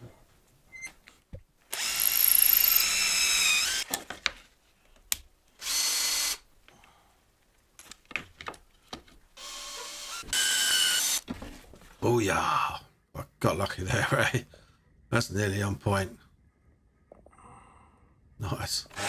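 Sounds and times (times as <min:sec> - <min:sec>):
drill-driver driving a screw: 0:01.7 - 0:03.9, 0:05.6 - 0:06.4, 0:09.4 - 0:11.2
power drill boring into plywood: 0:01.7 - 0:03.9, 0:05.6 - 0:06.4, 0:09.4 - 0:11.2
drill clicks: 0:01.7 - 0:04.0.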